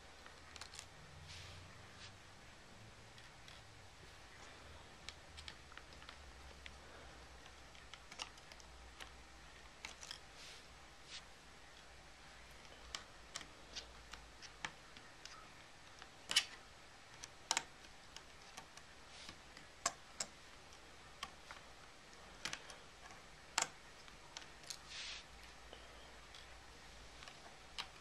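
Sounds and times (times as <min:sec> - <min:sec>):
fingers clicking plastic laptop case: 0:07.4 - 0:10.2, 0:12.5 - 0:24.8.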